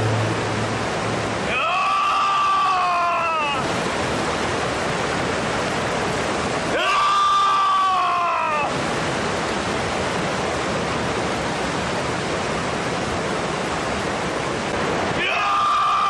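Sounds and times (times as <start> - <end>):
rushing mountain stream: 0.0 - 16.0
man yelling: 6.7 - 8.7, 15.2 - 16.0.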